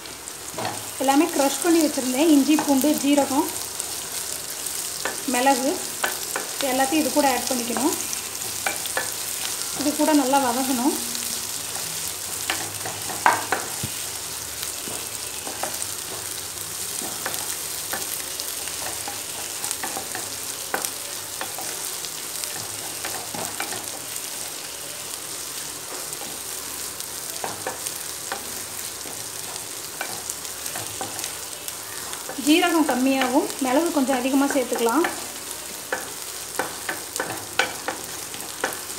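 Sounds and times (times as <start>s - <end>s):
onions sizzling in hot oil: 0.0s - 38.9s
spatula scraping and tapping pan: 5.9s - 10.8s, 11.7s - 14.1s, 14.8s - 24.2s, 27.3s - 31.4s, 32.2s - 38.9s.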